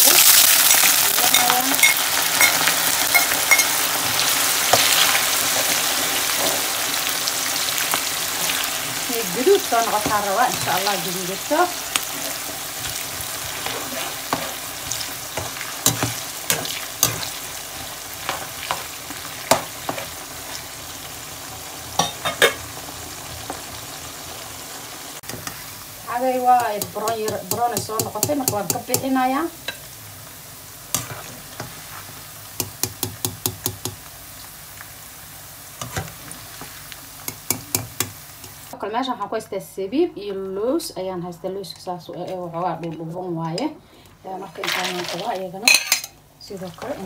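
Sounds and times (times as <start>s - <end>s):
onions sizzling in oil: 0.0s - 38.8s
metal spatula scraping a pan: 30.9s - 32.1s.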